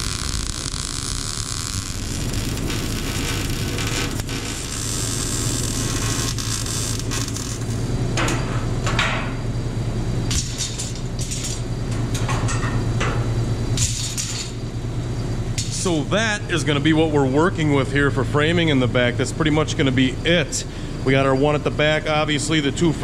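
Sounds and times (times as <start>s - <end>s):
welding hiss: 0.0s - 8.0s, 10.3s - 11.7s, 13.8s - 14.7s
low shop hum: 0.0s - 23.0s.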